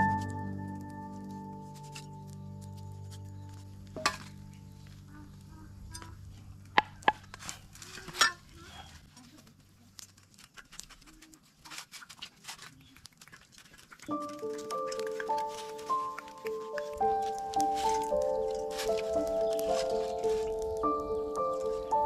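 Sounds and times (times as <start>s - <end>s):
background music: 0.0s - 7.2s, 14.1s - 22.0s
sharp clicks and taps: 14.0s - 21.1s.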